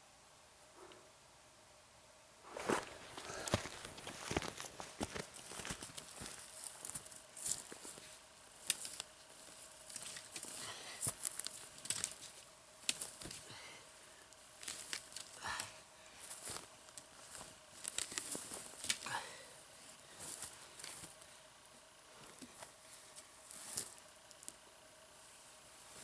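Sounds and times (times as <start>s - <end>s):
footsteps crunching through dry grass: 2.4s - 26.0s
rustling and crackling dry vegetation: 2.4s - 26.0s.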